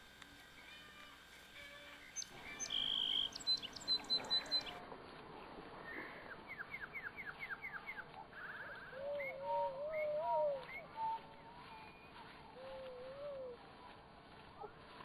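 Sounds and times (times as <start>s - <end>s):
young emus peeping and whistling: 2.0s - 4.8s, 5.8s - 14.0s.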